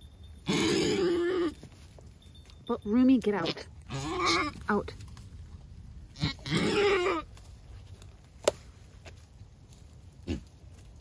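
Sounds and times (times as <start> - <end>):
goat bleating: 3.3 - 4.8, 6.1 - 7.4.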